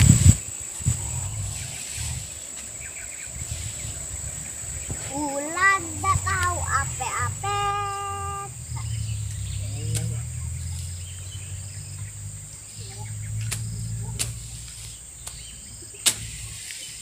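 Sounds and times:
low rumble: 0.0s - 2.3s, 3.3s - 16.6s
high insect drone: 0.0s - 17.0s
sharp clicks: 9.3s - 10.3s, 13.4s - 14.5s.

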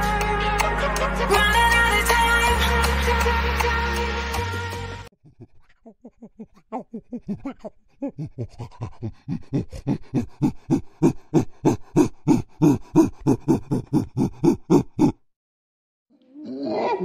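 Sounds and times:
chimpanzee pant-hooting: 5.2s - 15.2s.

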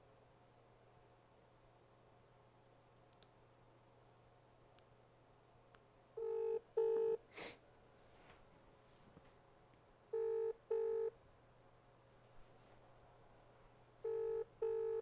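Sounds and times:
telephone ringback tone: 6.2s - 7.2s, 10.1s - 11.1s, 14.0s - 15.0s.

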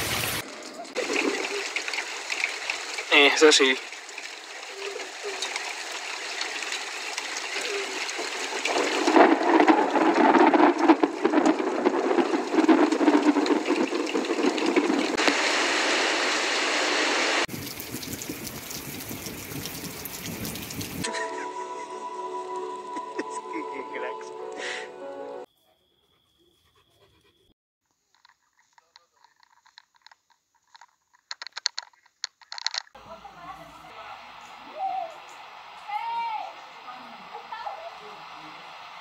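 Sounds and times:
heavy rain hiss: 0.0s - 21.1s, 33.0s - 39.0s.

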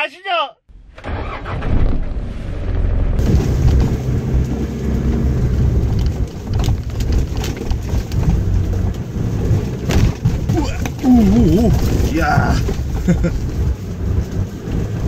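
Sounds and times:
car rumbling on bumpy track: 0.9s - 15.0s
knocks and rattles: 5.4s - 15.0s.

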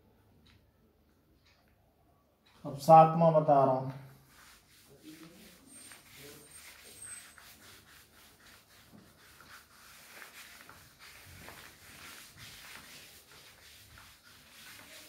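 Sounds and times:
cloth rubbing on blackboard: 4.1s - 15.0s.

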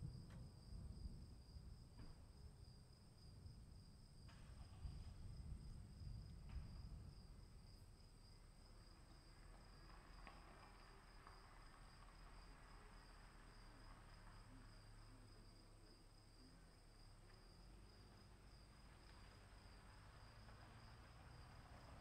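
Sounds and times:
faint low rumble: 0.0s - 22.0s.

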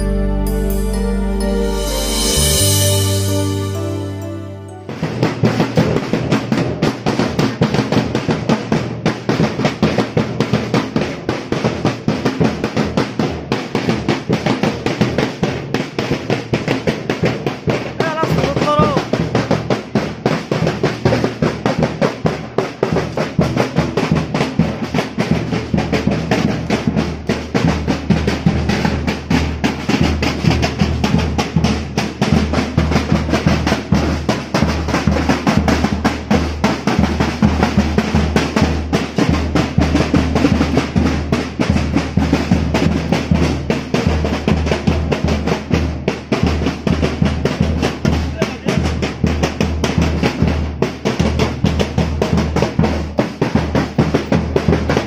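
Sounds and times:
wavering high tone: 0.0s - 6.0s
drums beaten fast: 0.0s - 55.0s.

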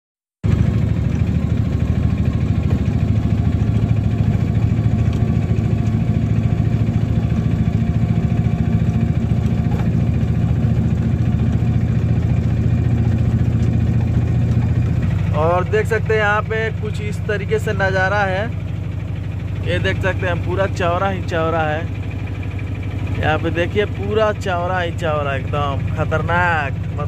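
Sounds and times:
motorcycle engine running: 0.4s - 27.0s.

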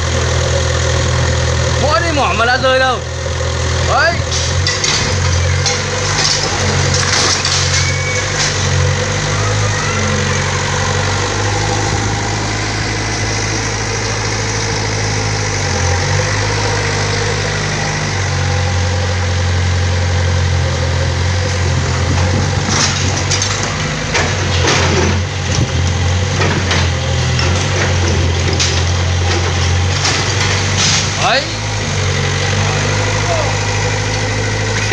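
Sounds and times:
excavator diesel engine running: 0.0s - 34.9s
bricks crashing onto rubble: 4.2s - 9.1s.

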